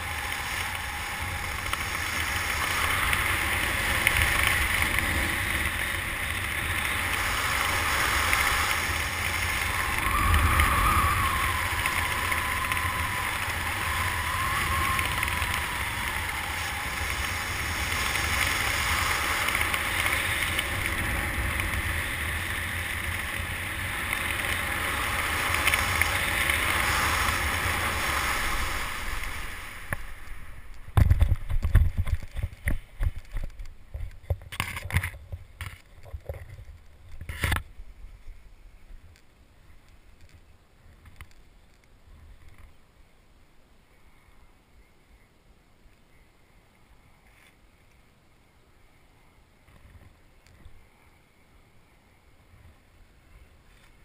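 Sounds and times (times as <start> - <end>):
wind rushing over microphone: 0.0 - 39.1.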